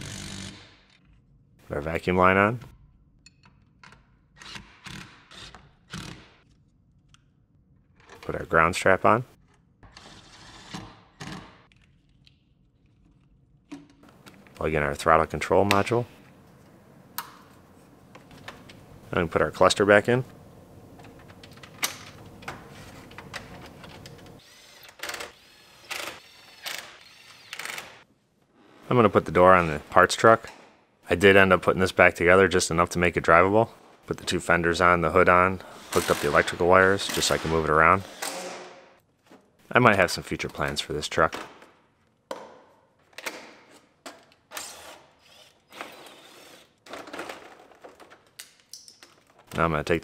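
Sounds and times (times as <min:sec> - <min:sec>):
power drill driving screws: 0:24.4 - 0:28.0, 0:38.0 - 0:38.7, 0:44.5 - 0:46.8.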